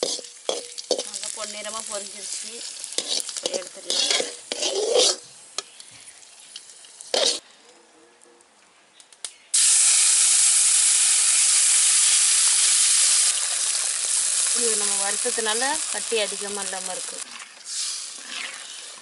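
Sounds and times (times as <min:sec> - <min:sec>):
ladle scraping in pan: 0:00.0 - 0:01.2, 0:02.3 - 0:05.3, 0:07.1 - 0:07.4
batter sizzling in hot pan: 0:00.0 - 0:07.4, 0:09.6 - 0:19.0.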